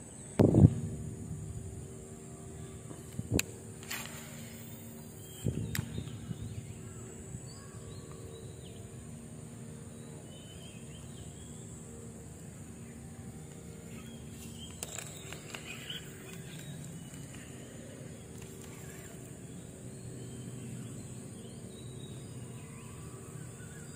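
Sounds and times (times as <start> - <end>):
wind rumble on microphone: 0.4 - 2.0, 2.9 - 3.6, 5.2 - 8.0
bird chirps: 13.8 - 23.9.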